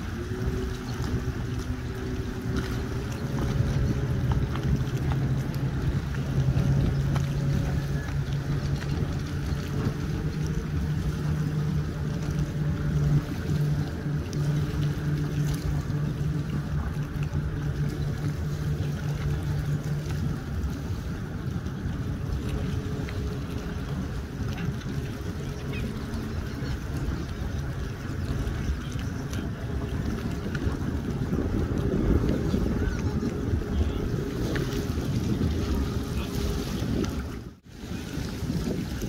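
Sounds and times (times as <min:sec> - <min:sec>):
outboard motor idling: 0:00.0 - 0:39.0.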